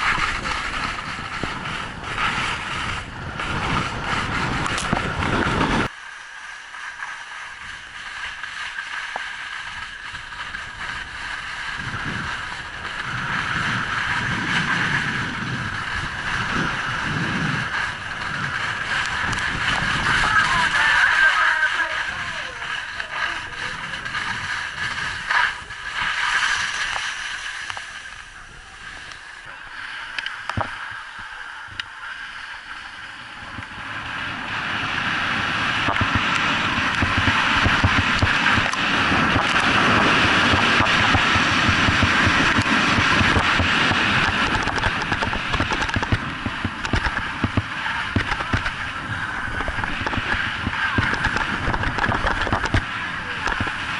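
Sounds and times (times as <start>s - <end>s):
wind rushing over microphone: 0.0s - 6.0s, 6.7s - 53.9s
skis scraping on snow: 0.0s - 53.9s.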